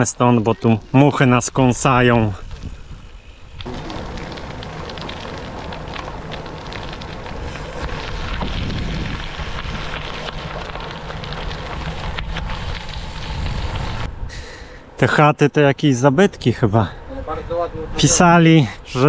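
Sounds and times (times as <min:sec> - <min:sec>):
bike tyres rolling on gravel: 0:00.0 - 0:14.1
wind rushing over microphone: 0:01.6 - 0:14.5.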